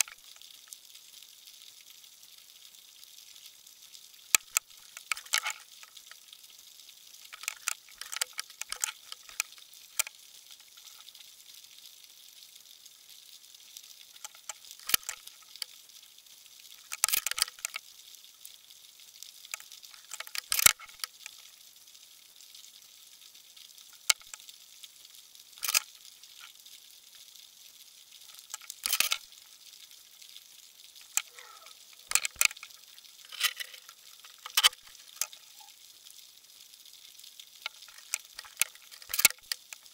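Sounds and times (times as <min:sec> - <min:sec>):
underwater clicks and crackles: 0:00.0 - 0:00.8, 0:04.3 - 0:06.5, 0:07.2 - 0:11.3, 0:14.0 - 0:15.8, 0:16.7 - 0:17.9, 0:19.2 - 0:21.6, 0:23.7 - 0:24.6, 0:25.5 - 0:26.7, 0:28.1 - 0:29.6, 0:30.8 - 0:35.9, 0:37.3 - 0:39.9.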